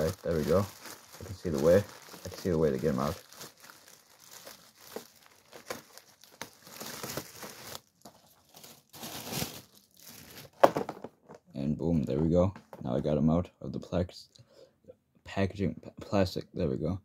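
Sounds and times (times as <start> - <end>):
plastic wrapping crinkling and tearing: 0.0 - 10.8.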